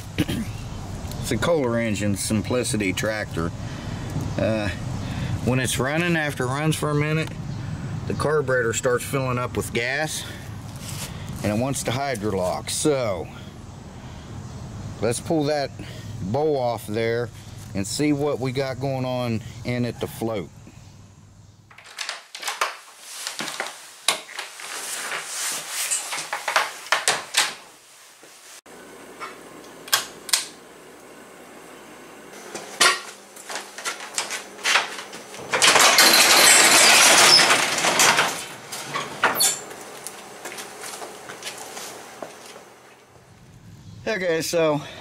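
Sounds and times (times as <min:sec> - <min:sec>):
metal tools clinking: 0:34.8 - 0:39.7.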